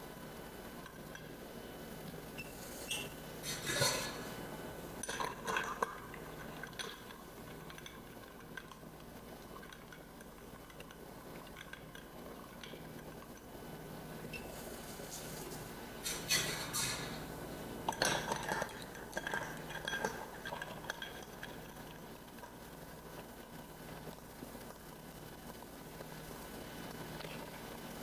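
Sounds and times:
ice clinking against glass: 0:17.9 - 0:21.6.

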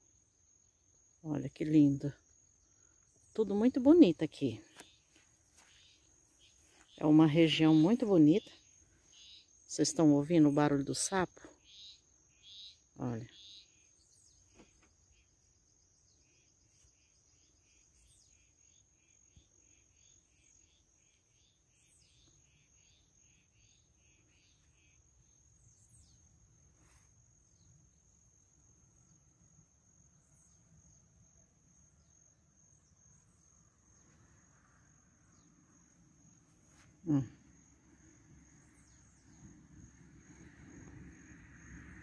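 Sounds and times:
high-pitched insect trill: 0:11.6 - 0:42.0.

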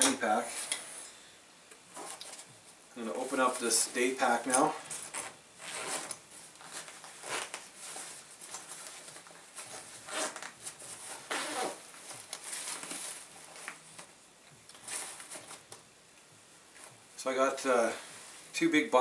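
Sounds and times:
fabric rustling and crinkling: 0:01.9 - 0:17.1
zipper being drawn: 0:05.0 - 0:06.2, 0:07.2 - 0:07.6, 0:09.7 - 0:11.9.

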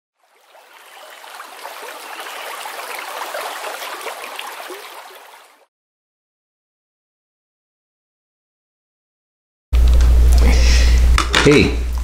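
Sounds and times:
stream rushing and gurgling: 0:00.2 - 0:05.7.

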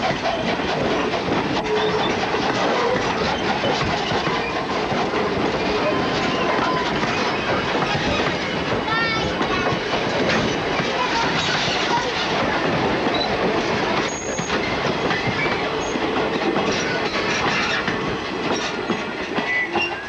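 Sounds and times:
high wheel squeals: 0:00.0 - 0:04.7, 0:05.6 - 0:08.6, 0:14.0 - 0:16.0, 0:18.6 - 0:20.0
train wheels clacking on rails: 0:00.0 - 0:20.0.

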